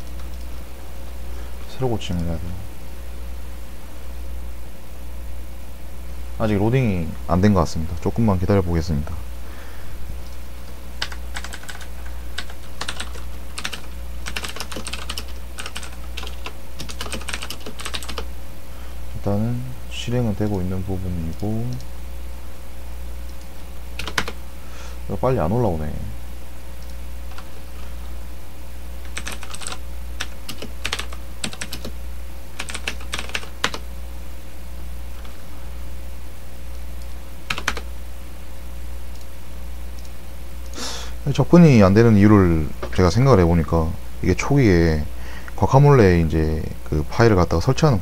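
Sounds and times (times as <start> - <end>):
steady low hum: 0.0 - 48.0
keyboard typing: 11.0 - 18.3, 23.3 - 24.4, 29.0 - 32.0, 32.6 - 33.8, 37.5 - 37.9.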